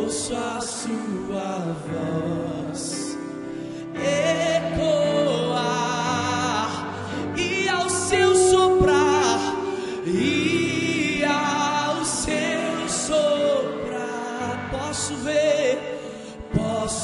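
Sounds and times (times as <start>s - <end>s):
person singing long notes: 7.4s - 12.9s.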